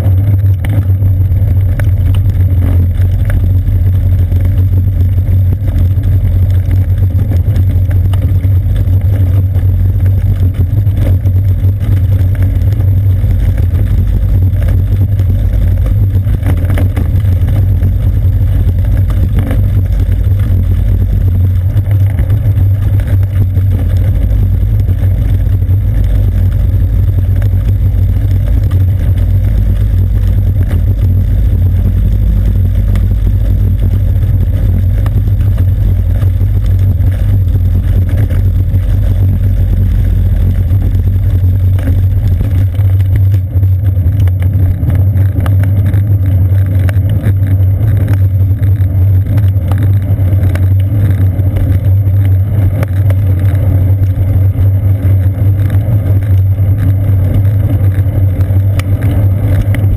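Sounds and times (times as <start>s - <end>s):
road vibration rumble: 0.0s - 59.9s
wind noise: 0.0s - 59.9s.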